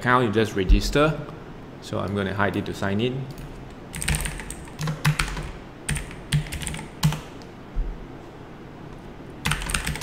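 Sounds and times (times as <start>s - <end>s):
typing on computer keyboard: 3.9s - 7.3s, 9.4s - 10.0s.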